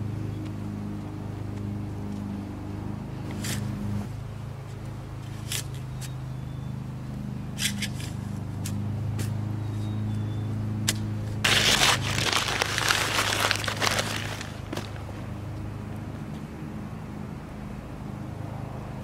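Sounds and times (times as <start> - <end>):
paper bag crinkling: 11.4 - 15.0
hoe scraping soil: 11.5 - 15.1.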